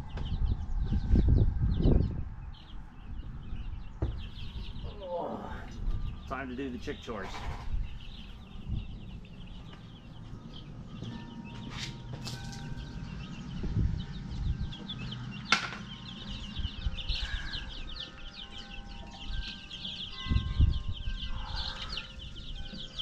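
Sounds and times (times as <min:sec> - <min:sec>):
baby chicks peeping: 0:00.0 - 0:23.0
sharp knocks: 0:15.5 - 0:16.1.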